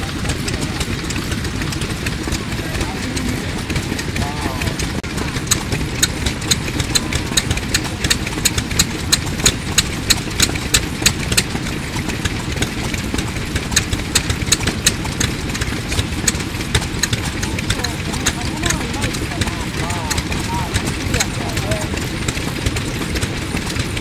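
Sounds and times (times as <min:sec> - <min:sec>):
engine running steadily: 0:00.0 - 0:24.0
rapid machine gear clicking: 0:00.0 - 0:24.0.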